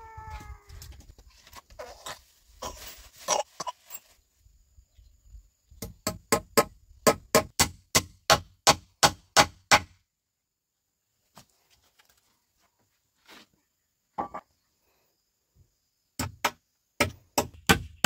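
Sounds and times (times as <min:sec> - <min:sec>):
hammer driving nails into wood: 0:05.8 - 0:09.9.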